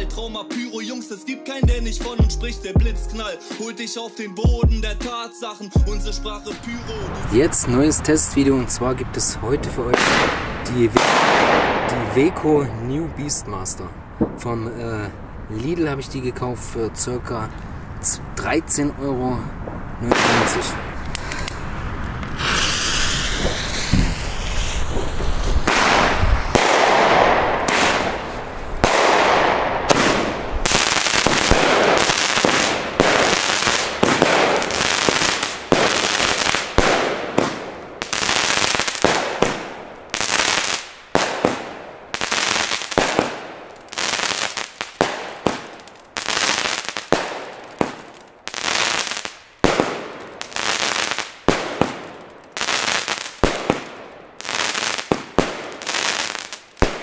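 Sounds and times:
firework reports: 0:06.4 - 0:57.0
firework launches and bursts: 0:09.9 - 0:12.2, 0:20.1 - 0:57.0
firework hissing and crackle: 0:20.0 - 0:57.0.

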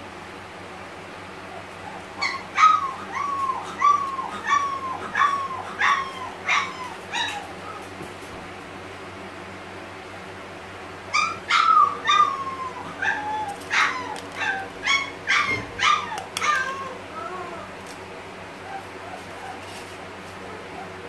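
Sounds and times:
puppy crying: 0:01.5 - 0:07.9, 0:11.1 - 0:17.8, 0:18.6 - 0:19.8.

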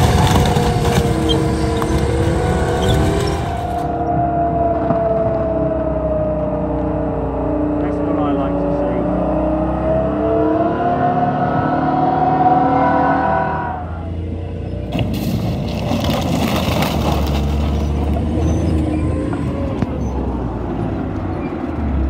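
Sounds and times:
harsh clattering and crunching: 0:00.0 - 0:04.0, 0:14.9 - 0:18.5
tank engine revving: 0:00.0 - 0:22.0.

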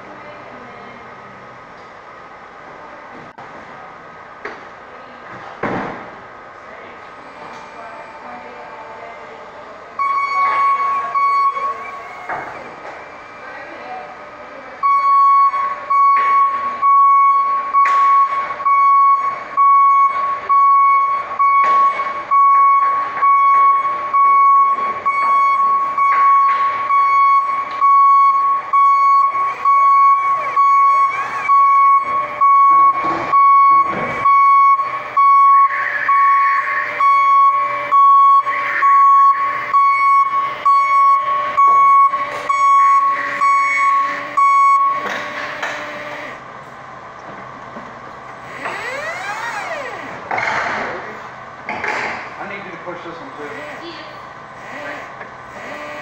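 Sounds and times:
forklift reversing alarm beeping: 0:10.0 - 0:46.4.

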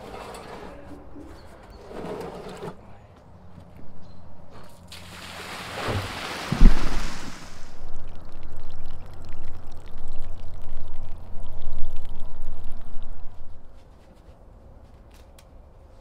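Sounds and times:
water pouring from a plastic barrel: 0:04.9 - 0:13.4
water running over concrete: 0:04.9 - 0:13.4.

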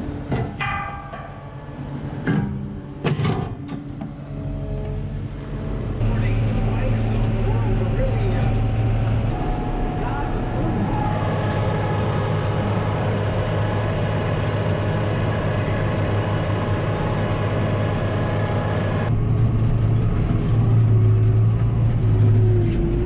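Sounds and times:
tractor engine running under load: 0:06.0 - 0:23.0.

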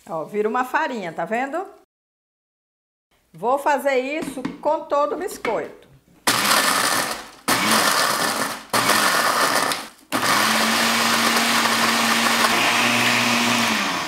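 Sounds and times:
blender grinding: 0:06.2 - 0:14.0.

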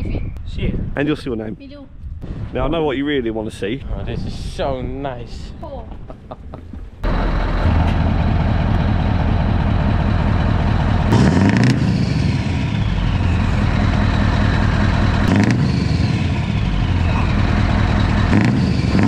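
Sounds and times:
engine revving: 0:07.0 - 0:19.0
truck diesel engine idling: 0:07.0 - 0:19.0.

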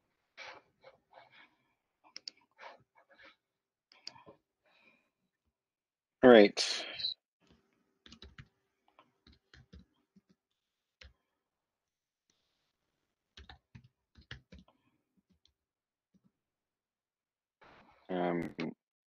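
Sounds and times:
keyboard and mouse clicks: 0:02.1 - 0:02.5, 0:03.9 - 0:04.3, 0:07.5 - 0:08.5, 0:09.2 - 0:10.4, 0:13.4 - 0:15.5.

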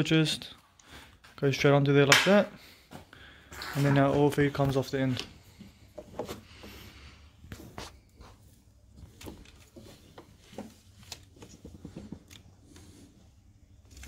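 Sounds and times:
faint clicks and rustling of hoses: 0:07.5 - 0:12.9.

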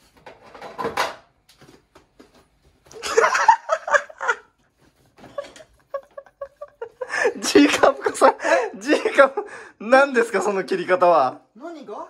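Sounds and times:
person laughing: 0:03.0 - 0:04.6, 0:05.2 - 0:09.3.

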